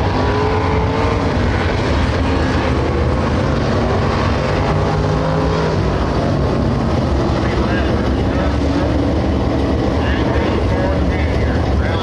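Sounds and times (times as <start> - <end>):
race car engines roaring: 0.0 - 12.0.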